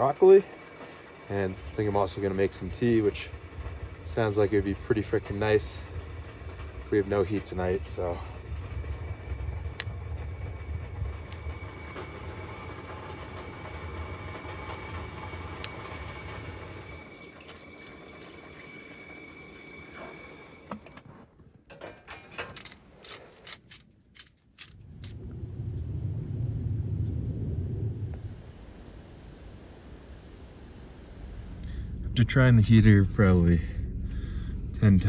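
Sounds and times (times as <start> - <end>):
camp stove rumble: 0.0 - 23.6, 24.6 - 35.0.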